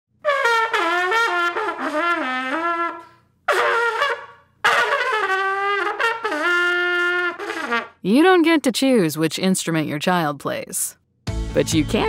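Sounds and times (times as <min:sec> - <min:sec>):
solo trumpet: 0:00.2 - 0:08.0.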